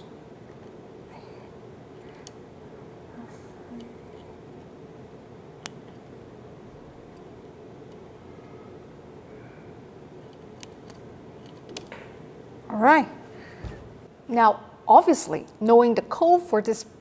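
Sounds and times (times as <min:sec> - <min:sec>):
low background hum: 0:00.0 - 0:17.0
metallic ticks of lock picking: 0:10.3 - 0:11.9.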